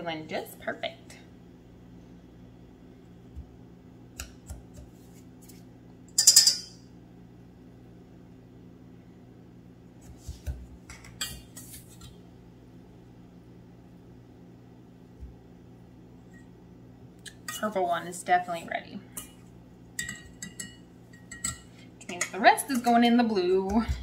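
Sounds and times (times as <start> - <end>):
whisk and spoon clinking in metal bowls: 6.1 - 6.8, 20.0 - 23.0.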